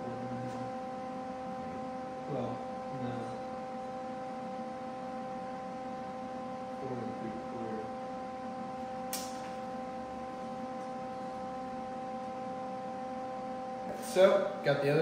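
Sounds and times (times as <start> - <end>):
electrical hum: 0.0 - 15.0
sharp click: 9.1 - 9.5.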